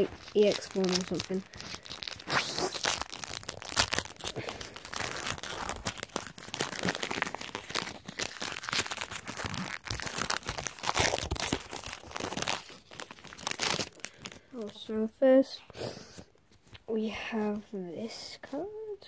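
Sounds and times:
foil wrapper crinkling and tearing: 0.0 - 14.8.

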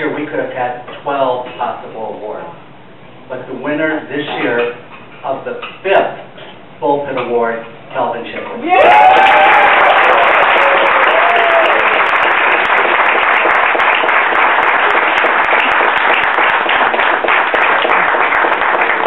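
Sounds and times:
audience applauding: 8.8 - 19.0.

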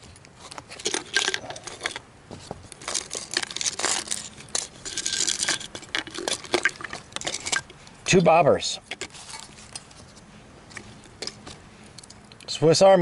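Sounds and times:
items rattling in plastic bottle: 0.4 - 7.7
plastic wrapping crinkling: 2.6 - 7.7.

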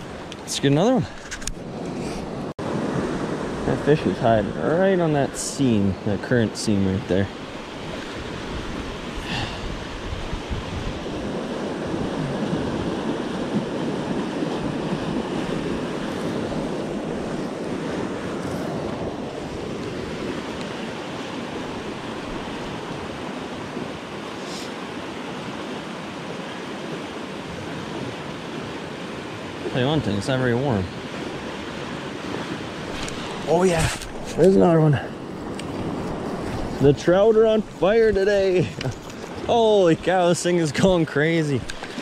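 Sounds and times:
fast river rushing: 0.0 - 42.0
wind rumbling on microphone: 7.3 - 29.8, 30.8 - 40.2.

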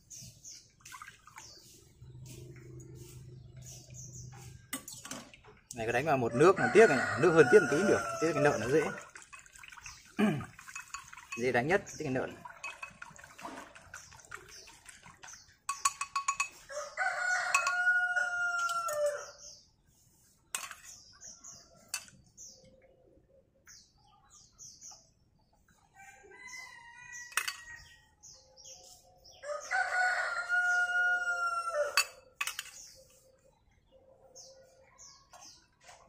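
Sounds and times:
small birds chirping: 0.0 - 36.0
rooster crowing: 6.3 - 9.0, 16.7 - 19.3, 29.4 - 32.2
metal ladle clinking bowls: 7.4 - 14.1, 15.6 - 16.7, 17.5 - 19.2, 20.5 - 21.0, 21.8 - 22.2, 27.2 - 27.9, 31.9 - 33.0.

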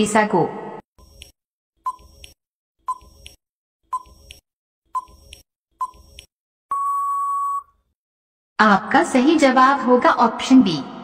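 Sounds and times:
short beeping ticks: 1.2 - 4.4, 5.0 - 7.7
long steady beep: 6.7 - 7.8.

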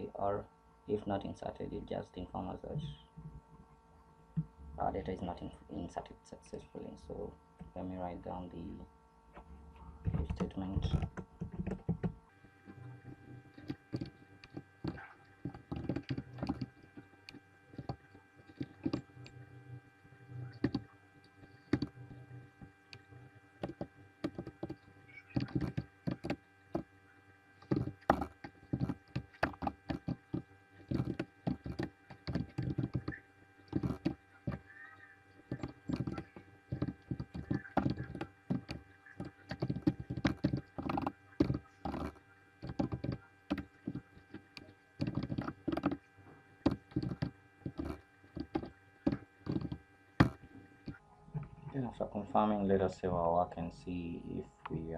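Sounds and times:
steady low hum: 0.0 - 54.9
computer keyboard typing: 10.1 - 12.1, 13.6 - 16.8, 17.8 - 19.0, 20.6 - 20.8, 21.7 - 21.9, 23.6 - 26.8, 27.6 - 34.6, 35.5 - 46.0, 46.6 - 51.0.

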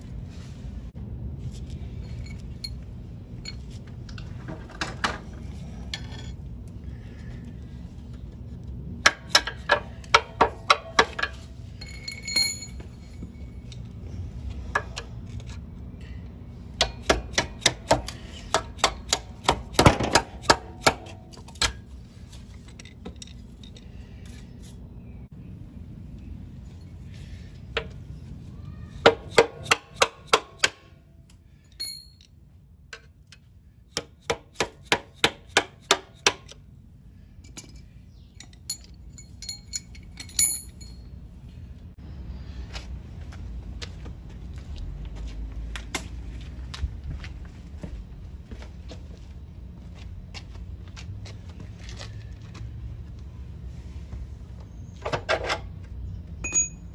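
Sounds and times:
low steady hum: 0.0 - 56.9
metal ringing: 9.1 - 13.5, 31.7 - 32.3, 37.5 - 41.1, 56.4 - 56.9.

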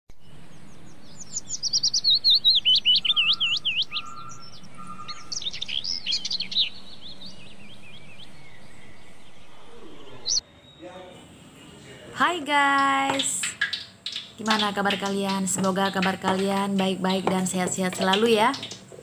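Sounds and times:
songbirds chirping: 0.2 - 19.0
steady low hiss: 5.6 - 19.0.

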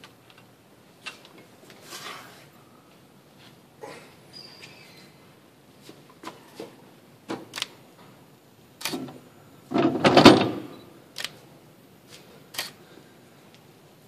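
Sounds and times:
metal knocks and clunks: 9.7 - 10.7.

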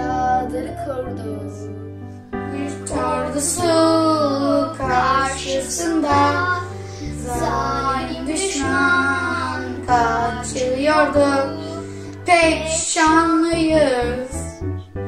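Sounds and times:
instrumental backing track: 0.0 - 15.0
children singing: 2.5 - 14.3.

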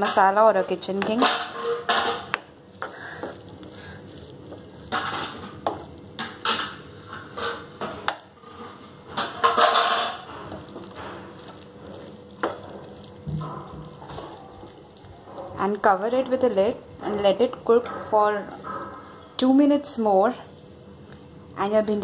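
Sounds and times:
spatula scraping frying pan: 1.1 - 15.6.

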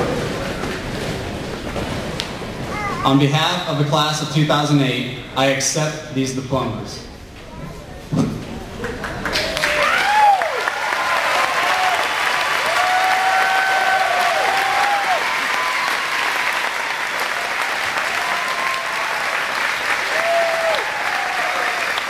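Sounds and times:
crowd applauding and cheering: 8.8 - 22.0
drawn-out whoops: 9.8 - 16.4, 20.0 - 22.0.

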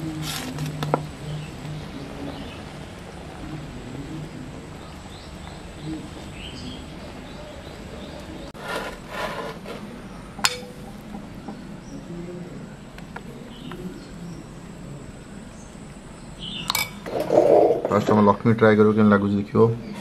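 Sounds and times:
scraping and handling noise: 0.0 - 1.2, 8.6 - 11.2
spoon clinking against glass bowl: 16.7 - 17.0.

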